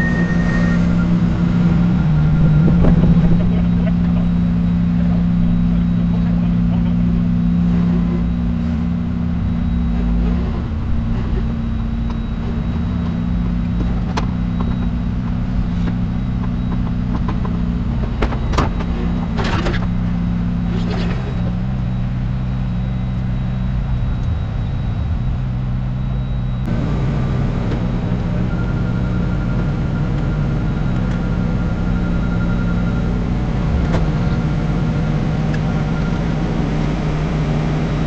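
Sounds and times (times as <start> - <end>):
engine droning: 0.0 - 38.0.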